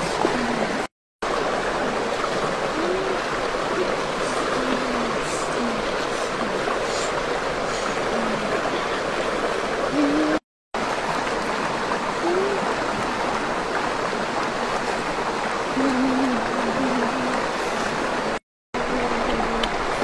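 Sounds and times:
stream rushing over rocks: 0.0 - 20.0.

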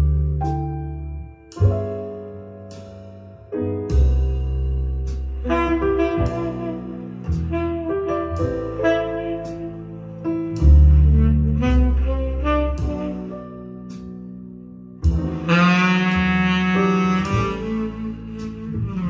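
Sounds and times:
low bass line: 0.0 - 19.0
piano: 0.0 - 19.0
saxophone: 5.4 - 14.2, 15.0 - 19.0.

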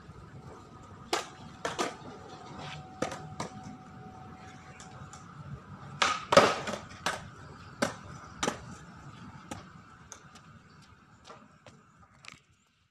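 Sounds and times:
skateboard clacking on hard court: 1.1 - 2.4, 6.0 - 8.8.

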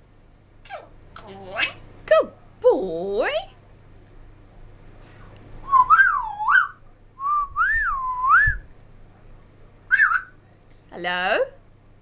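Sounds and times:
parrot whistling: 5.6 - 8.5, 9.9 - 10.4.

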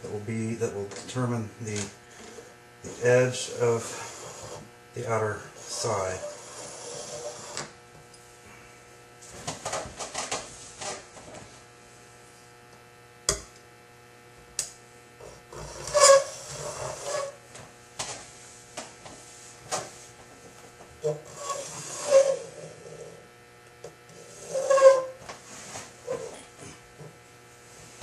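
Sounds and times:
electrical hum: 0.0 - 28.0
metal bar scraping sheet metal: 5.6 - 7.6, 15.5 - 17.4, 21.0 - 23.2, 24.1 - 25.2, 26.0 - 26.3.

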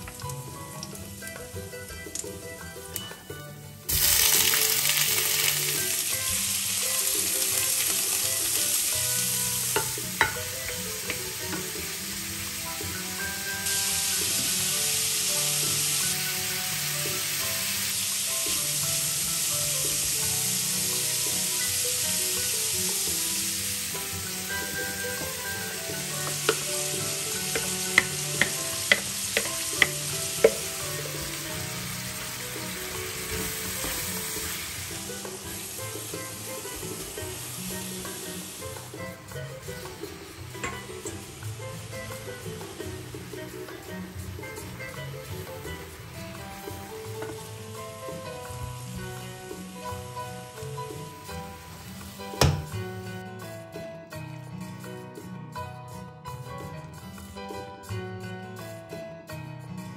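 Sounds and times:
shrimp sizzling in a frying pan: 0.0 - 53.7
utensil clicking against pan: 26.1 - 30.8.

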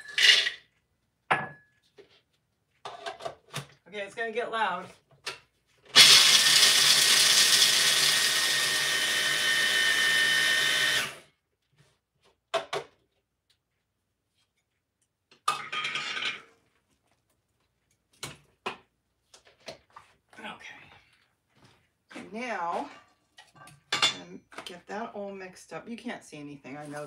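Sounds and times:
kitchen appliance motor grinding: 5.9 - 11.2.

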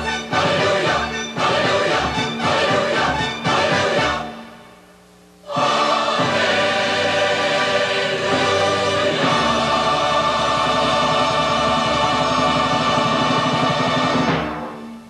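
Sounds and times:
choir singing with orchestra: 0.0 - 4.7, 5.4 - 15.0.

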